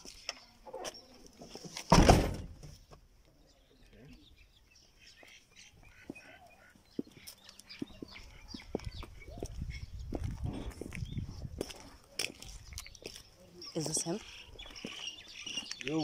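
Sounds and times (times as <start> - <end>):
faint birdsong: 0.0 - 1.8, 2.7 - 16.0
car door shutting: 1.9 - 2.6.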